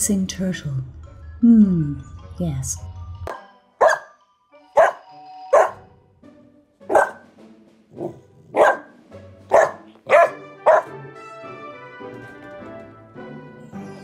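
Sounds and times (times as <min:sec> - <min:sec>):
background music: 0:00.0 - 0:14.0
puppy barking: 0:03.3 - 0:04.2, 0:04.8 - 0:05.8, 0:06.9 - 0:07.3, 0:08.0 - 0:11.0.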